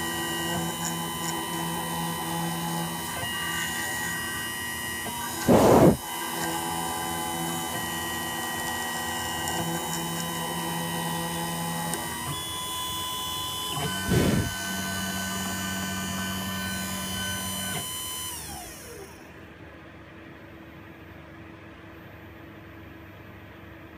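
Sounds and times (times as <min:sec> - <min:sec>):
milling machine whining: 0:00.0 - 0:19.2
short loud rushes of noise: 0:05.4 - 0:06.0, 0:14.0 - 0:14.6.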